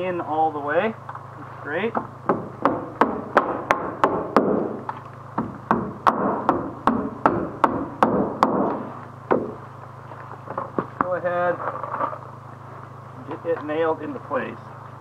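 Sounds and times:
hammer driving nails: 2.3 - 4.8, 5.4 - 9.6.

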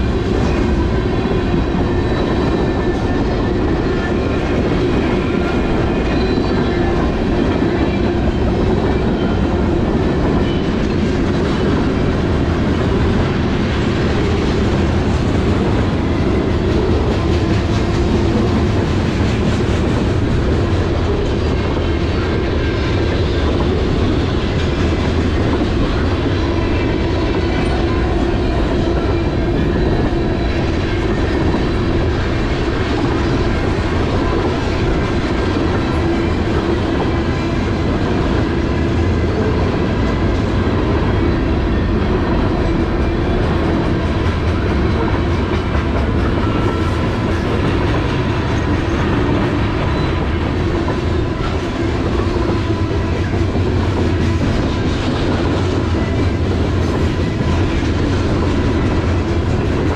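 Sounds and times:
freight train wheels on rails: 0.0 - 59.9.

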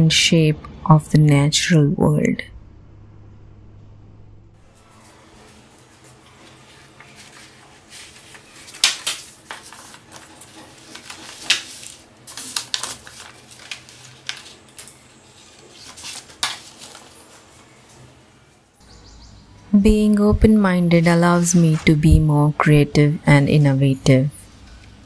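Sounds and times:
paper sheets rustling and flapping: 4.6 - 18.2, 21.0 - 22.2.

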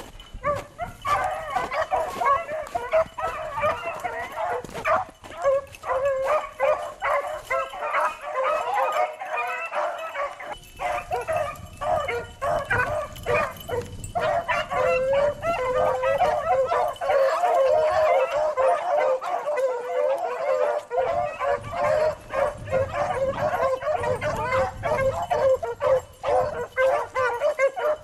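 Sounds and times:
hounds baying: 0.0 - 28.0.

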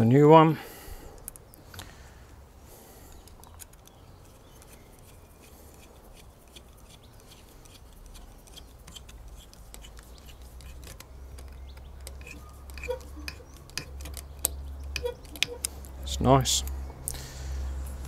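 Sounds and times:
small clicks and taps of tools: 4.6 - 15.9.

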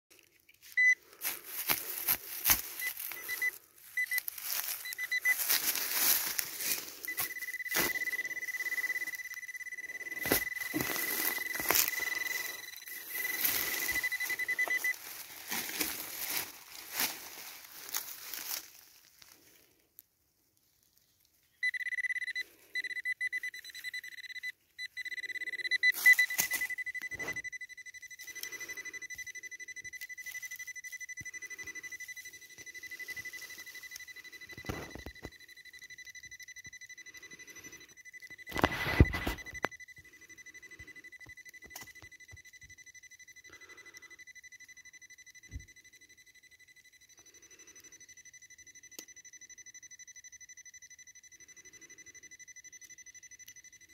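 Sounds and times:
metal detector tone: 0.5 - 19.5, 21.5 - 53.9
hand digging in soil: 0.6 - 9.2, 10.1 - 19.4.

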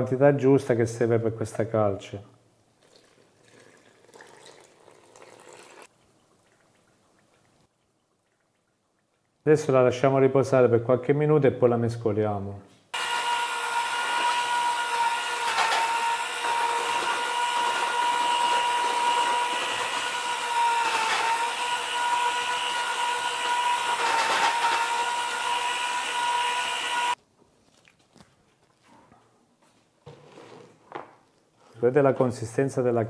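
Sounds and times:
electric paddle mixer whining: 13.0 - 27.2.

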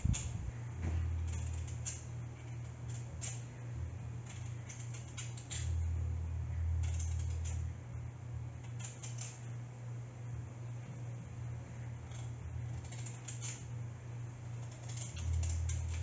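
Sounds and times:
steady low hum: 0.0 - 16.0
knife scraping potato skin: 1.0 - 3.6, 4.2 - 5.8, 6.6 - 7.7, 8.6 - 9.5, 12.1 - 13.7, 14.6 - 16.0.

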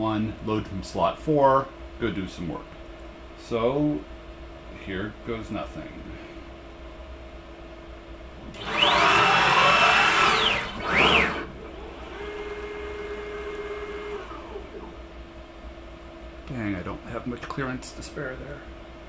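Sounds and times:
stepper motors whining: 8.4 - 15.0.

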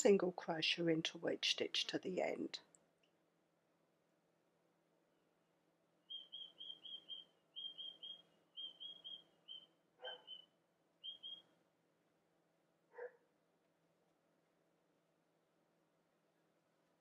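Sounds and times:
bird chirping: 6.0 - 11.6.

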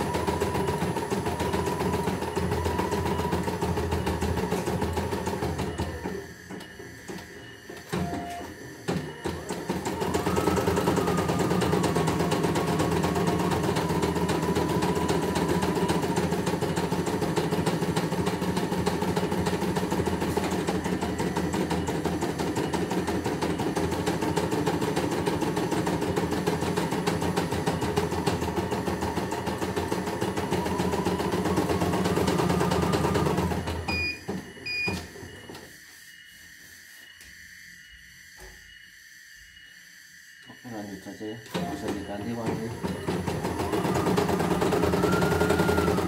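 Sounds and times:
embroidery machine stitching: 0.0 - 34.1, 41.5 - 46.0
short electronic beeps: 40.4 - 42.7.

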